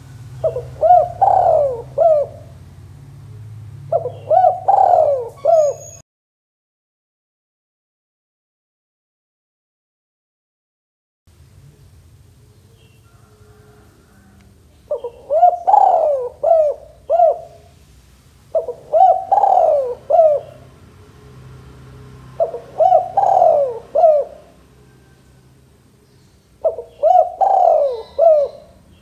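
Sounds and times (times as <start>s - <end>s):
dove cooing: 0.4s - 2.6s, 3.3s - 6.0s, 12.4s - 17.8s, 18.5s - 20.8s, 22.2s - 29.0s.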